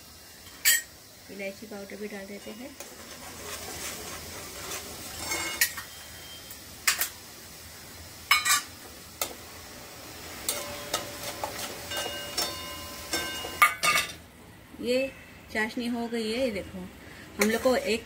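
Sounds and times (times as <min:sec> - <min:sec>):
syrup simmering hiss: 0:00.0 - 0:13.5
spoon clinking in metal pan: 0:10.5 - 0:14.2.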